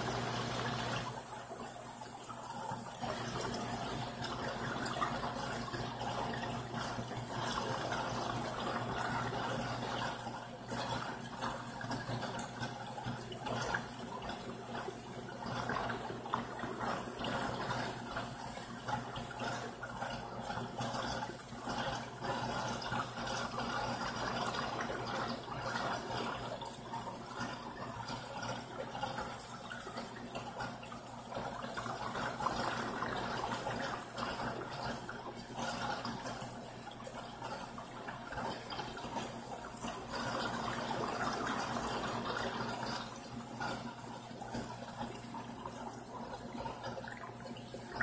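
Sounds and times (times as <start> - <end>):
aquarium water running: 0.0 - 48.0.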